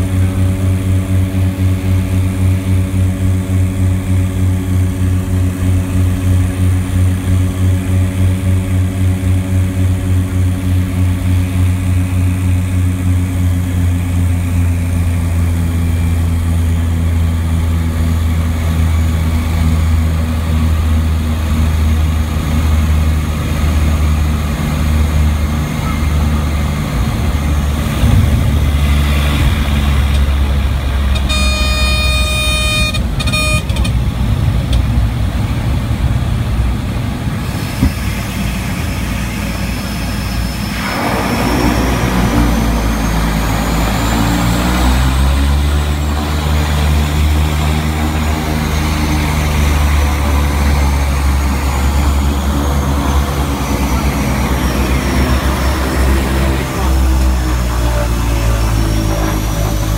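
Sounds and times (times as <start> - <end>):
propeller plane engine droning: 0.0 - 59.9
pitched tone: 27.4 - 33.9
water spray rushing: 39.7 - 45.0.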